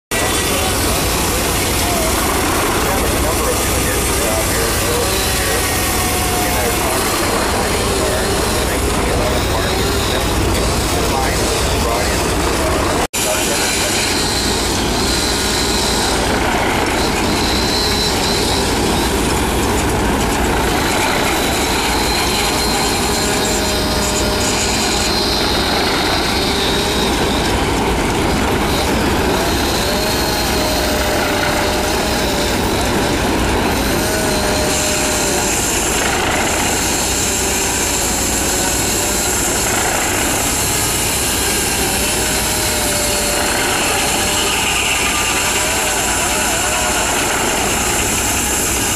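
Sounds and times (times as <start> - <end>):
circular saw cutting log: 0.1 - 48.9.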